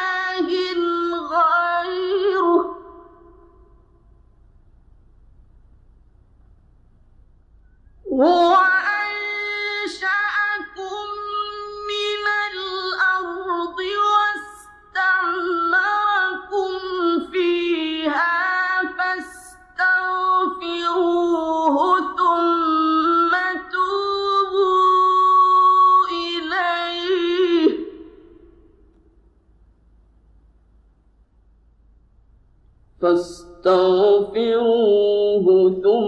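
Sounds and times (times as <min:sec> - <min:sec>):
man chanting recitation: 0:33.0 - 0:36.0.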